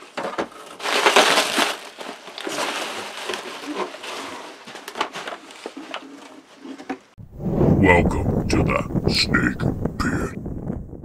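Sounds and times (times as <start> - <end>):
bubble wrap and cardboard rustling: 0.0 - 7.1.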